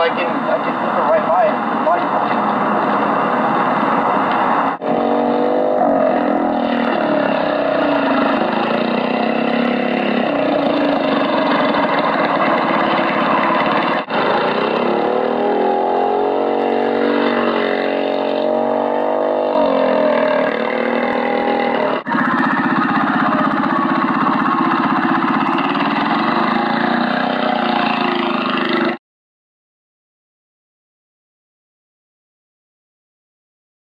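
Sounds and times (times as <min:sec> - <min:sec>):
small engine revving: 0:04.8 - 0:29.0.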